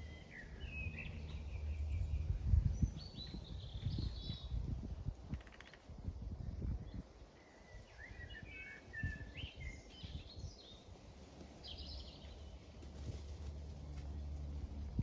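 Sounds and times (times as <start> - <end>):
birds chirping and singing: 0.0 - 5.8, 6.8 - 12.7.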